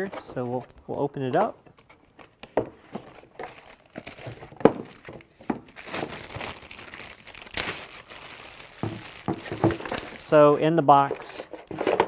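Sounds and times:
plastic bag crinkling: 3.2 - 10.7
cardboard knocks and scrapes: 8.8 - 10.2, 11.0 - 12.0.

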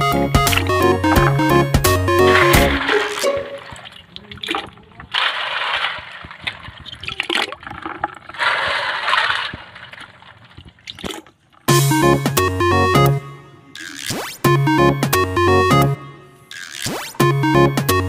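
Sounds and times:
water sloshing and splashing: 2.3 - 11.7
shells plopping into water: 2.4 - 11.7.

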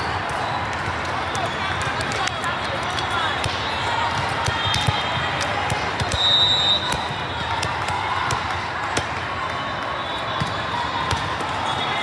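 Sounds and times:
indistinct crowd voices: 0.0 - 12.0
referee's whistle: 6.0 - 7.5, 9.8 - 10.6, 11.6 - 12.0.

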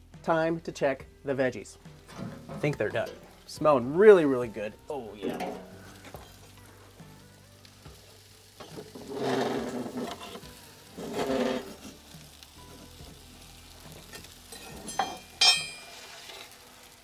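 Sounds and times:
vegetables sizzling: 1.2 - 17.0
metal pan scraping oven floor: 2.1 - 3.3, 8.6 - 12.0.

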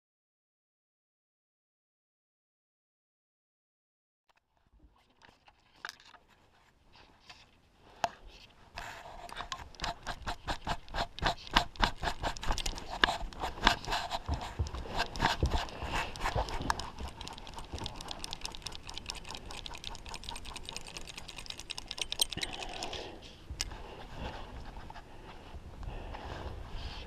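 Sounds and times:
fly reel drag ticking: 16.2 - 23.0.

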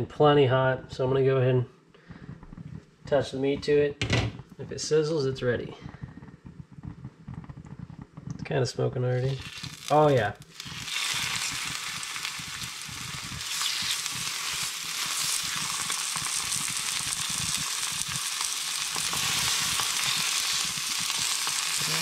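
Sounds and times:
meat sizzling in a skillet: 9.2 - 22.0.

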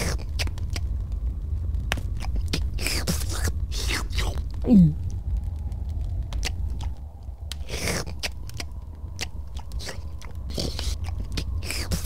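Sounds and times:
low steady hum: 0.0 - 12.0
sharp chewing crunches: 7.6 - 12.0.

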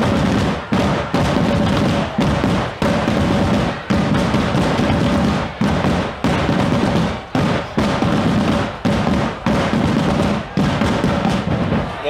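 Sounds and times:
group drumming on large drums: 0.0 - 12.0.

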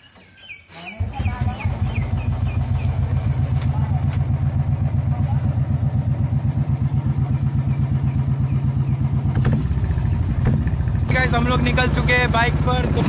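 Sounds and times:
motorcycle engine running: 1.0 - 13.0.

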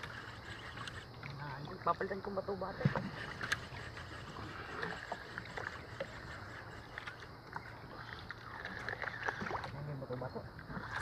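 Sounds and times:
sea noise: 0.0 - 11.0
wind: 0.0 - 11.0.

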